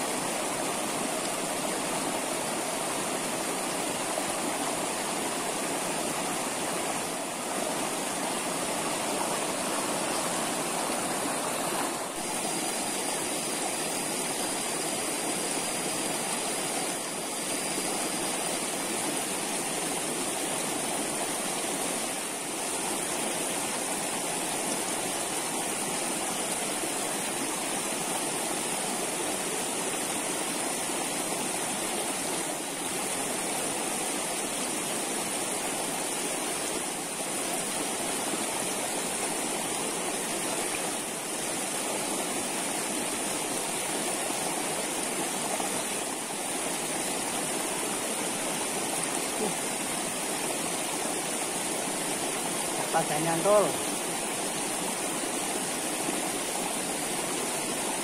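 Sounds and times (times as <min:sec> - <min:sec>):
stream rushing: 0:00.0 - 0:58.0.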